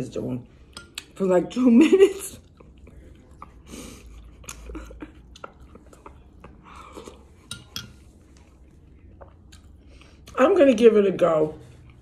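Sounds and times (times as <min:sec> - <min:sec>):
soft chewing: 0:02.0 - 0:12.0
spoon clinking against ceramic bowl: 0:07.4 - 0:08.0.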